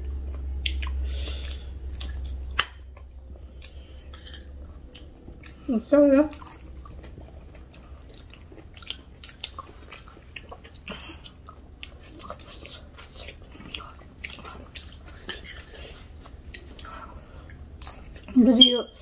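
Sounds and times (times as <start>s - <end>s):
chewing crunchy snack: 0.0s - 5.7s, 6.3s - 18.4s
wet mouth clicks: 0.6s - 2.3s.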